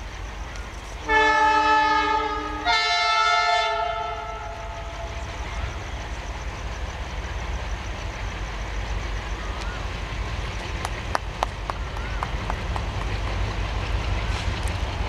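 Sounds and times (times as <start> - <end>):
low rumble of train: 0.0 - 15.0
two-tone train horn: 1.0 - 5.9.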